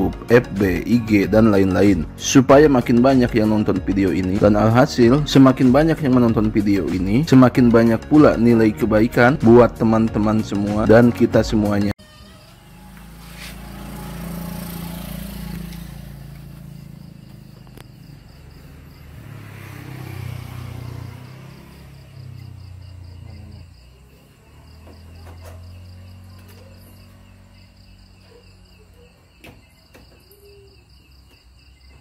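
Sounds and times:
crickets chirping: 12.0 - 32.0.

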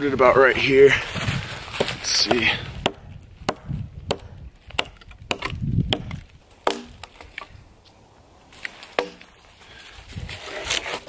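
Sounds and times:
blade chopping tree trunk: 1.7 - 7.5, 8.9 - 9.3.

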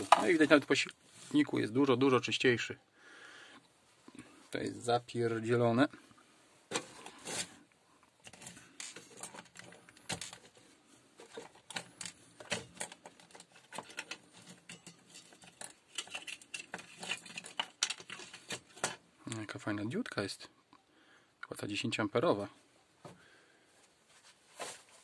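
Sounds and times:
plastic drill parts clicking: 8.2 - 10.6, 11.2 - 19.0.

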